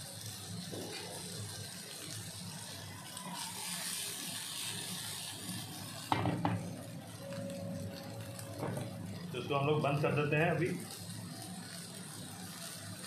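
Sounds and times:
meat sizzling in a grill pan: 0.0 - 13.0
pan knocking on stove grate: 6.1 - 6.6.

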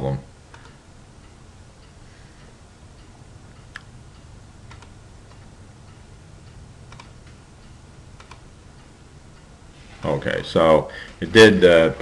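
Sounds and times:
steady low hum: 0.0 - 12.0
computer mouse clicks: 0.5 - 0.8, 4.7 - 5.5, 6.9 - 7.4, 8.2 - 8.5.

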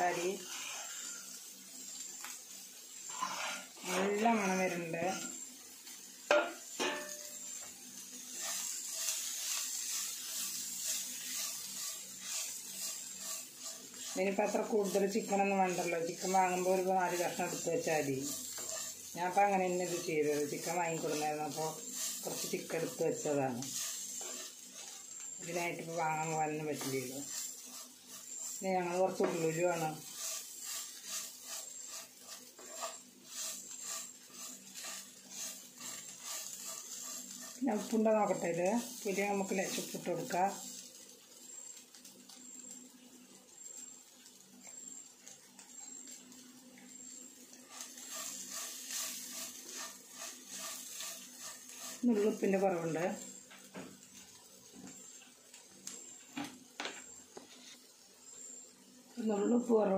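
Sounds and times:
wooden spatula scraping a pan: 0.0 - 1.4, 3.0 - 5.4, 8.2 - 40.6, 47.7 - 53.0, 57.4 - 57.9
food sizzling in a pan: 0.0 - 59.9.

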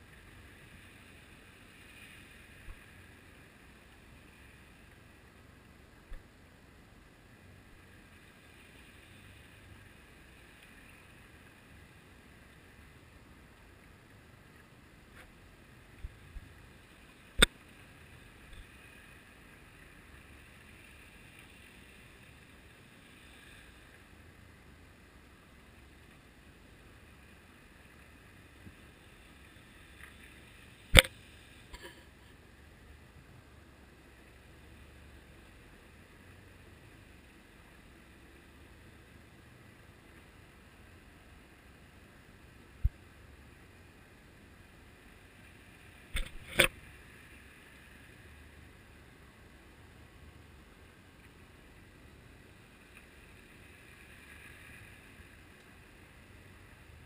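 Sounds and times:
muffled underwater hiss: 0.0 - 57.0
short sharp clicks: 30.9 - 31.1.

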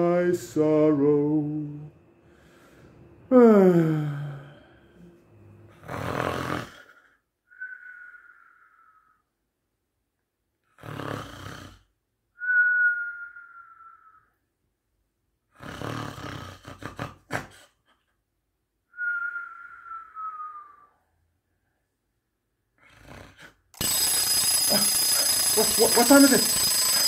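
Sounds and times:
cartoon snoring with whistle: 5.7 - 7.0, 10.6 - 11.9, 15.5 - 17.5, 22.8 - 23.6.

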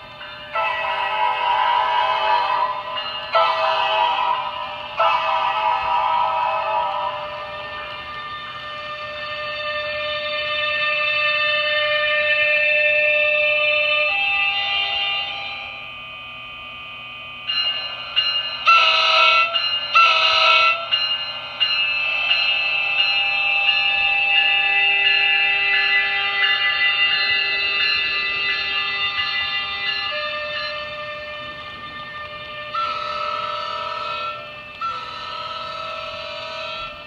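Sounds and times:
model train electronic whine: 0.0 - 37.0
model train horn blasts: 18.7 - 20.9, 30.6 - 37.0.

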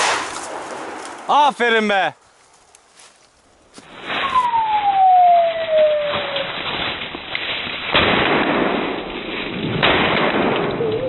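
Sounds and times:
rustling through dry undergrowth: 0.0 - 9.7
descending whistle-like note: 4.1 - 6.6, 10.7 - 11.0
shotgun firing: 7.9 - 9.0, 9.7 - 10.8.

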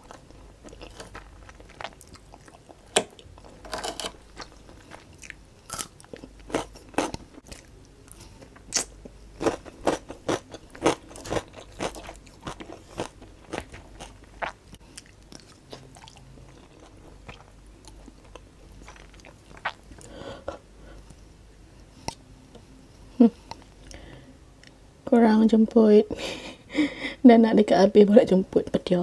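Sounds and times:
person chewing and crunching food: 0.0 - 21.2.

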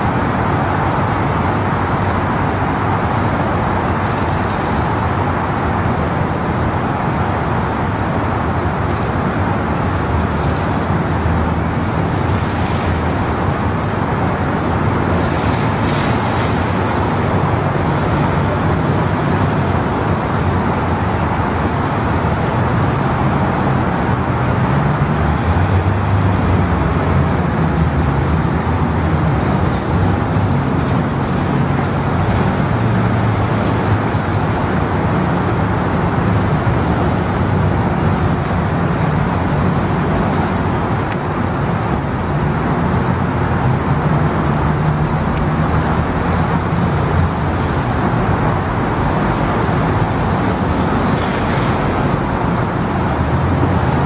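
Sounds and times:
city street traffic: 0.0 - 54.0.

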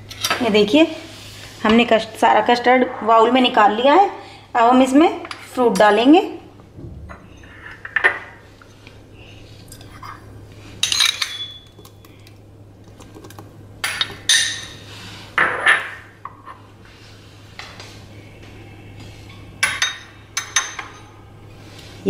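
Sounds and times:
spoon clinking on glass bowls: 10.8 - 12.1, 19.6 - 21.1.

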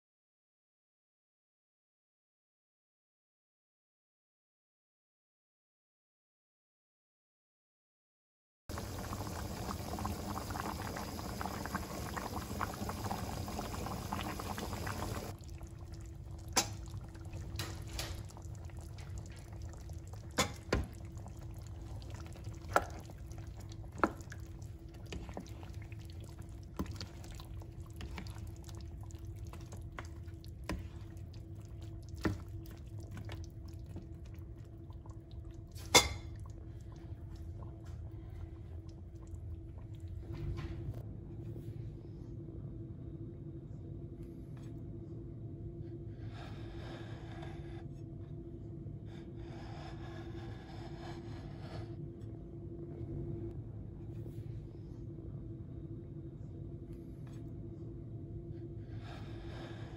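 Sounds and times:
curry bubbling with hiss: 8.7 - 40.8
faint steady hum: 8.7 - 59.9.

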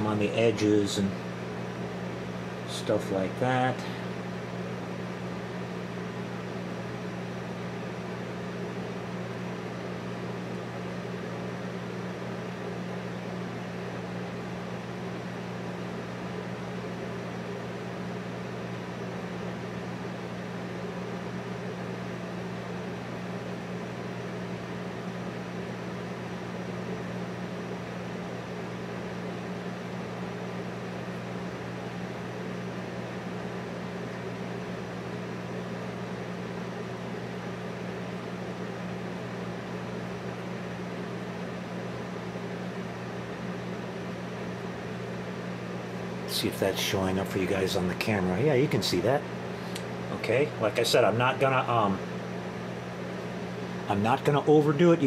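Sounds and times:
low machine hum: 0.0 - 55.0.

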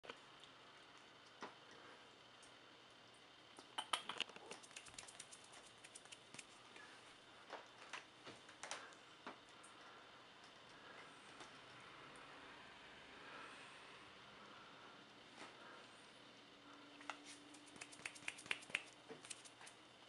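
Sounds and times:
kittens scratching in cat litter: 4.4 - 6.6, 17.1 - 19.8.

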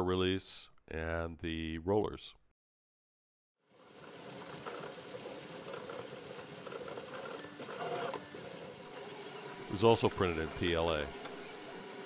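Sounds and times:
stepper motors whirring: 4.2 - 12.0.

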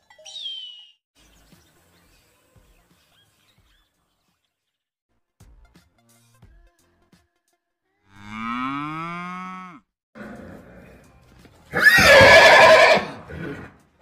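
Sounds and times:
harsh high animal call: 11.8 - 13.7.

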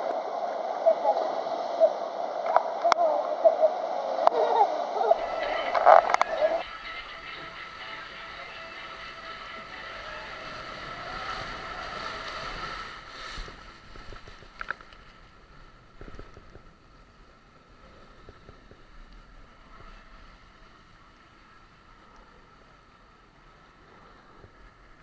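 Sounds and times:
water rushing down slide: 0.0 - 14.8
rider sliding down water slide: 4.2 - 25.0.

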